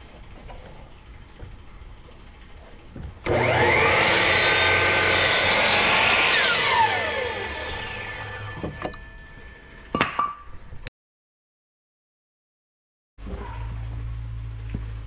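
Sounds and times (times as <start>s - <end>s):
miter saw cutting wood: 3.2s - 9.9s
saw blade winding down whine: 3.2s - 10.0s.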